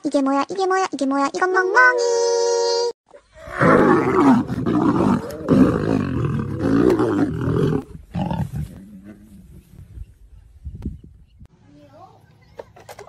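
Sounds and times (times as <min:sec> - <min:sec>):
lions snarling and roaring: 0:03.3 - 0:09.9
lion growl: 0:03.4 - 0:09.8.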